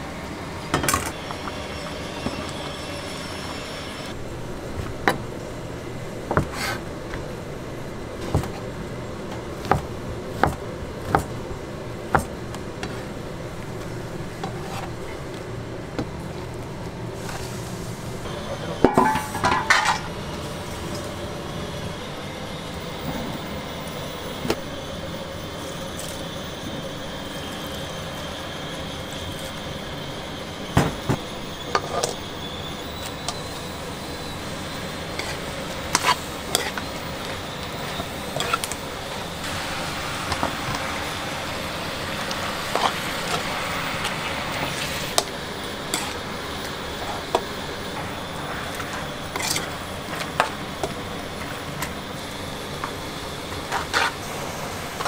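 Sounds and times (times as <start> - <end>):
kitchen background noise: 0.0 - 55.0
metal bowl clattering against pan: 18.9 - 20.1
metal spoon scraping in wok: 31.7 - 38.8, 45.9 - 46.2, 53.7 - 54.2.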